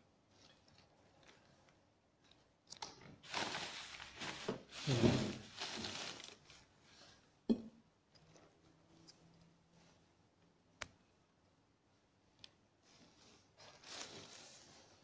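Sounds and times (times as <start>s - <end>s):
close rustling and crinkling: 3.2s - 7.2s, 12.8s - 15.0s.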